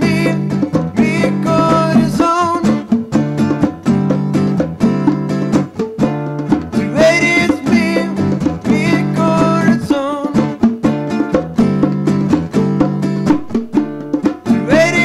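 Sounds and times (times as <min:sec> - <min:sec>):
person singing: 0:00.0 - 0:03.1, 0:06.8 - 0:10.6, 0:14.5 - 0:15.0
plucked guitar: 0:00.0 - 0:15.0.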